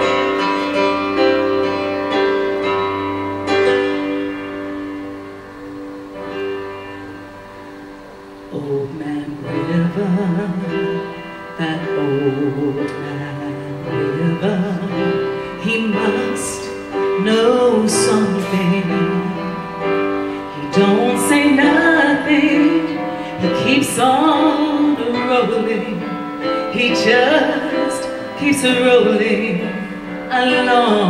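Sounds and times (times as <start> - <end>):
piano accompaniment: 0.0 - 31.0
woman singing ballad: 8.5 - 31.0.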